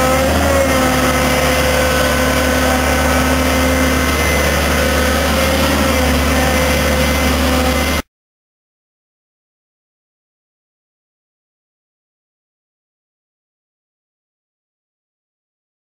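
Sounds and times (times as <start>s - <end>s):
constant whine: 0.0s - 8.0s
excavator diesel engine running: 0.0s - 8.0s.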